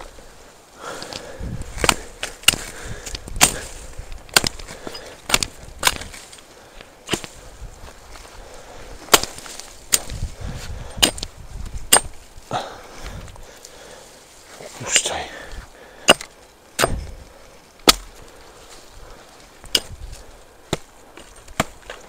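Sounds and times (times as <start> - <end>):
blade chopping tree trunk: 1.8 - 6.2, 7.1 - 7.4, 9.1 - 10.2, 11.0 - 11.3, 11.9 - 12.2, 16.0 - 17.2, 17.8 - 18.2, 19.6 - 20.0, 20.7 - 22.0.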